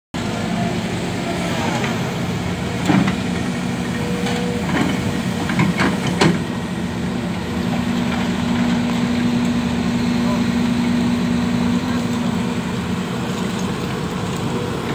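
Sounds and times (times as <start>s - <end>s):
excavator diesel engine running: 0.2s - 14.9s
excavator bucket clanks: 2.8s - 6.6s.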